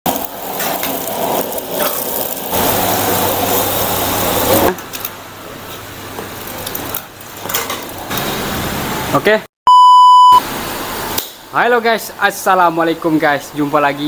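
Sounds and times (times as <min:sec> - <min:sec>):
food sizzling in wok: 0:00.1 - 0:04.8
gas burner roaring: 0:00.1 - 0:09.3.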